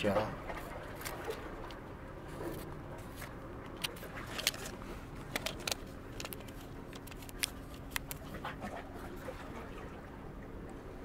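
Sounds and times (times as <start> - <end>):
plastic piece clicking and scraping: 3.7 - 8.2.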